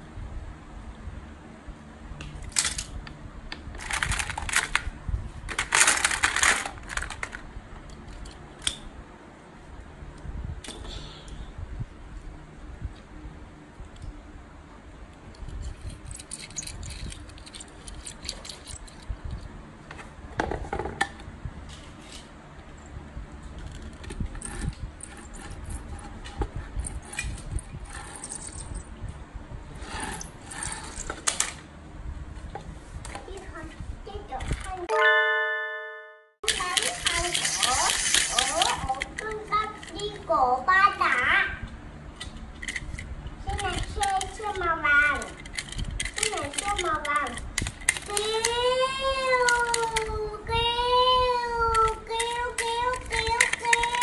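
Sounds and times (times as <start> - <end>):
toy cars clattering in plastic basket: 3.8 - 4.8, 5.5 - 7.4, 36.5 - 40.2, 43.6 - 48.6, 51.7 - 54.0
toy car wheels rolling on wood: 36.5 - 40.2.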